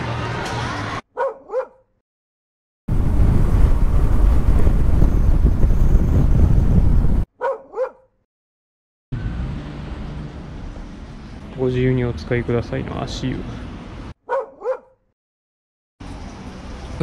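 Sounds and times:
dog yelps: 1.2s - 1.9s, 7.4s - 8.1s, 14.3s - 15.0s
wind rushing past helmet: 2.9s - 7.3s.

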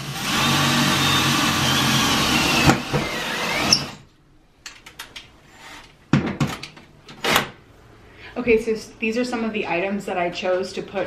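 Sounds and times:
cordless drill boring into wall: 0.0s - 4.0s.

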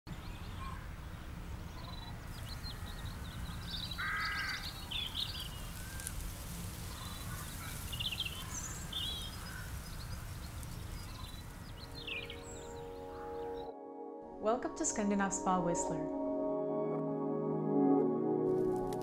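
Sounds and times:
birds chirping: 0.1s - 13.8s.

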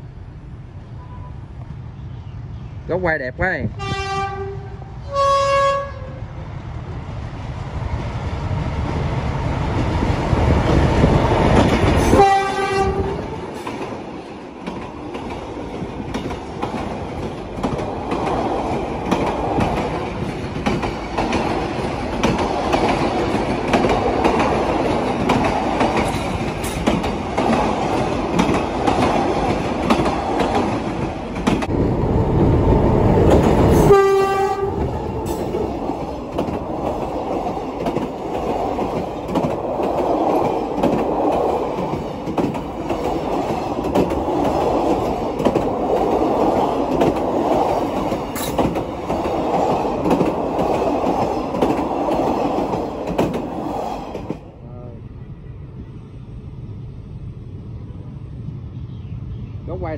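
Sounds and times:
train rumbling and rattling past: 0.0s - 59.9s
train horn blast: 3.8s - 6.3s, 12.0s - 13.4s, 33.8s - 35.4s.

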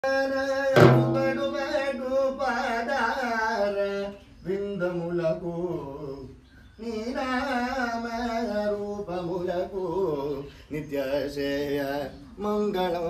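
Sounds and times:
man singing: 0.0s - 13.0s
deep drum stroke: 0.8s - 2.1s.

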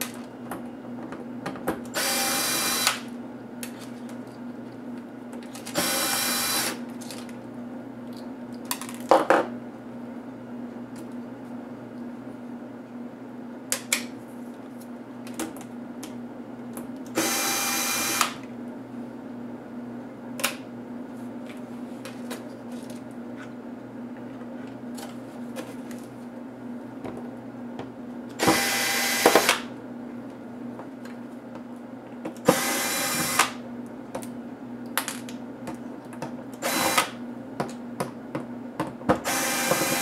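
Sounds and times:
cordless electric screwdriver running: 2.0s - 3.0s, 5.8s - 6.8s, 28.4s - 29.6s, 32.5s - 33.5s, 36.6s - 37.1s, 39.3s - 40.0s.

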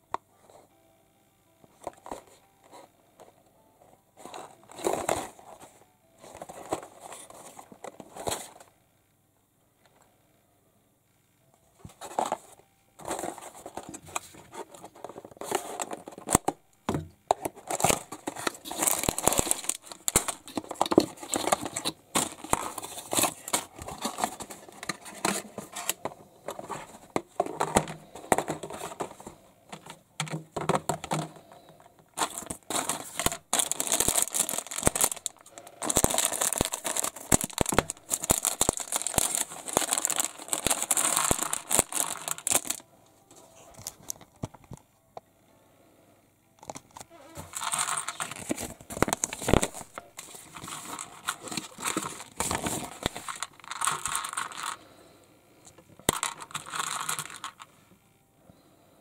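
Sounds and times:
packaging crinkling and tearing: 13.0s - 16.6s, 17.3s - 29.9s, 30.9s - 42.8s, 46.6s - 54.8s, 56.1s - 57.6s.

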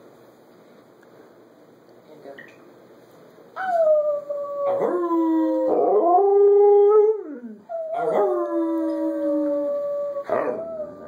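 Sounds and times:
dog howling: 3.6s - 11.0s.

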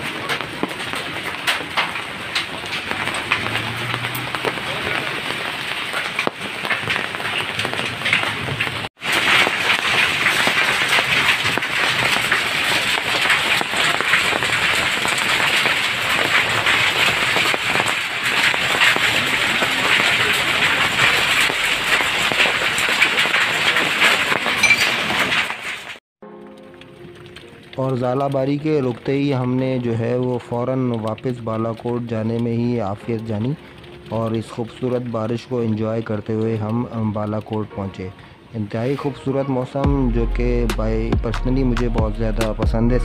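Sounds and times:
heavy rain and hail falling: 0.0s - 39.1s.

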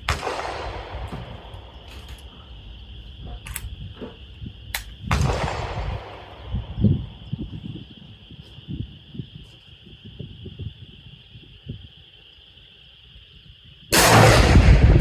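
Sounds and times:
echoing rifle shot: 0.0s - 1.8s, 4.8s - 6.5s, 13.9s - 15.0s.

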